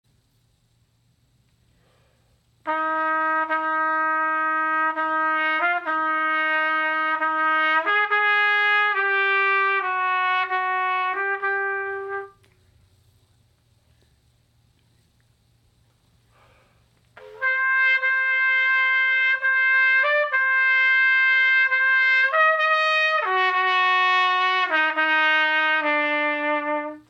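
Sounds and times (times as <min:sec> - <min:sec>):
faint room hum: 0:00.0 - 0:27.0
trumpet playing slow melody: 0:02.6 - 0:12.5, 0:17.2 - 0:27.0.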